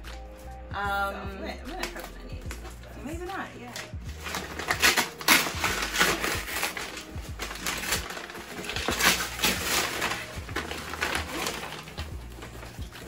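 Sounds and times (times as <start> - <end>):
paper wrapping crinkling: 3.7 - 13.0.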